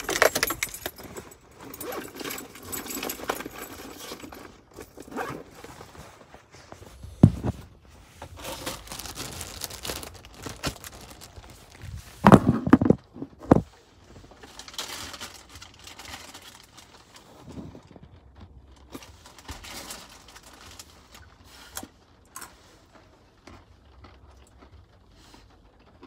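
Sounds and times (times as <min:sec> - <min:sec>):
faint rustles: 0:00.6 - 0:18.2
crunching of nuts being eaten: 0:21.8 - 0:26.0.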